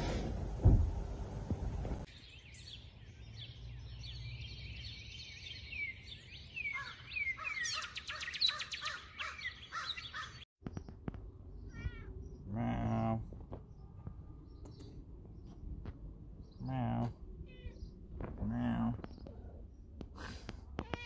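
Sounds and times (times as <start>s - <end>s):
birds chirping and singing: 2.1s - 20.0s.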